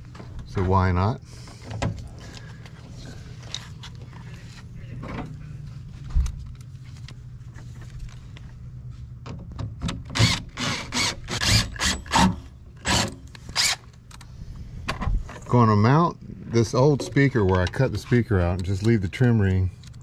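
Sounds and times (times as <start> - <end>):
screwdriver scraping clicking strokes: 12.8 - 14.2.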